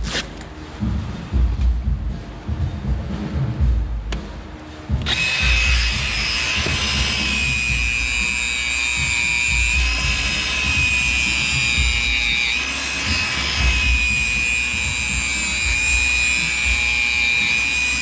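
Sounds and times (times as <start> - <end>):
power tool motor whining: 5.0 - 18.0.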